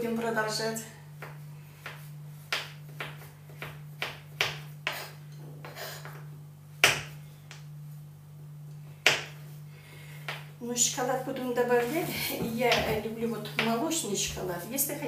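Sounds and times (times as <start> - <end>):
steady low hum: 0.0 - 15.0
knife chopping on wooden board: 1.2 - 6.2, 6.8 - 7.2, 9.0 - 9.4.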